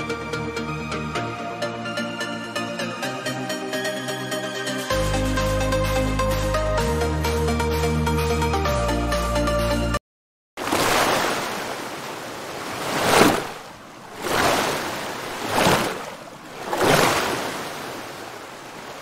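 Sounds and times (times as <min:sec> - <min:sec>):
waves breaking on beach: 0:10.6 - 0:19.0.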